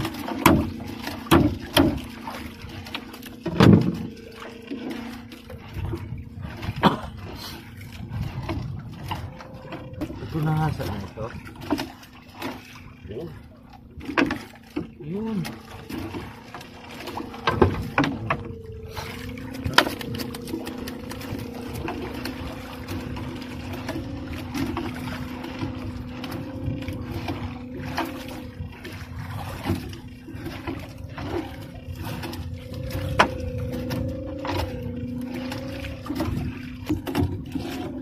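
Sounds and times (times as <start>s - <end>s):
knocks against wooden hull: 0.0s - 2.5s, 3.4s - 4.1s
water dripping: 14.4s - 37.2s
steady hum: 14.8s - 38.0s.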